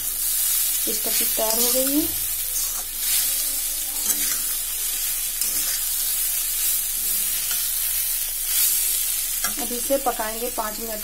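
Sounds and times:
sizzling hiss: 0:00.0 - 0:11.0
metal spatula scraping metal pan: 0:04.0 - 0:04.6, 0:05.4 - 0:06.0.

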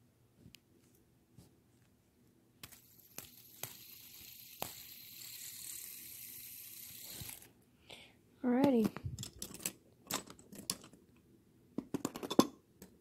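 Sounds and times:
fidget spinner clicks: 0:02.6 - 0:07.5
fidget spinner whirring: 0:02.6 - 0:07.6.

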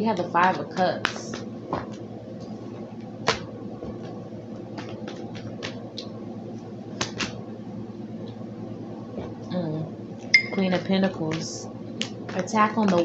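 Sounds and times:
steady low hum: 0:00.0 - 0:13.0
cards clicking and tapping: 0:00.1 - 0:02.0, 0:03.2 - 0:05.8, 0:07.0 - 0:07.4, 0:10.7 - 0:13.0.

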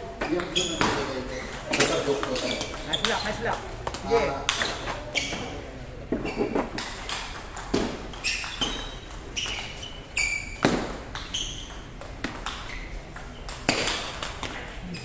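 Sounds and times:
ping pong ball clicking: 0:11.1 - 0:14.8.

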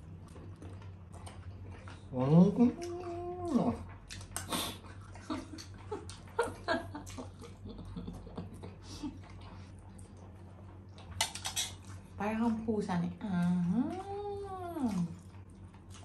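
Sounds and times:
wet chewing and lip smacks: 0:00.0 - 0:08.0, 0:08.6 - 0:12.2, 0:14.9 - 0:16.0.

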